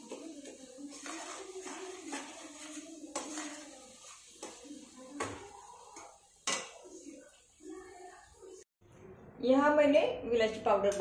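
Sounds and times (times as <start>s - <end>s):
metal spoon stirring and scraping: 0.0s - 8.5s.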